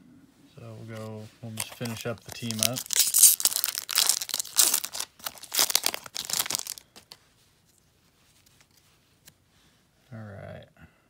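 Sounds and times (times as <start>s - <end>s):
foil wrapper tearing and crinkling: 1.6s - 7.2s.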